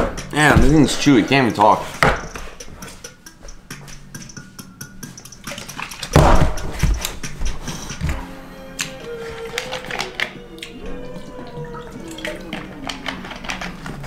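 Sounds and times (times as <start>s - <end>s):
background music: 0.0s - 14.0s
dull thud: 6.1s - 7.1s.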